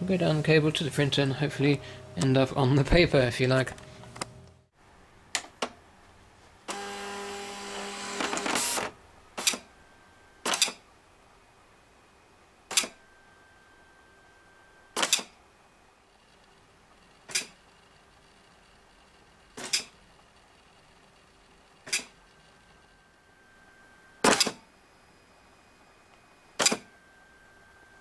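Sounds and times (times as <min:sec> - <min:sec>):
dot matrix printer buzzing clatter: 0:06.7 - 0:09.7, 0:10.4 - 0:10.8, 0:15.0 - 0:15.3, 0:16.1 - 0:23.0, 0:24.2 - 0:24.6, 0:26.5 - 0:27.0.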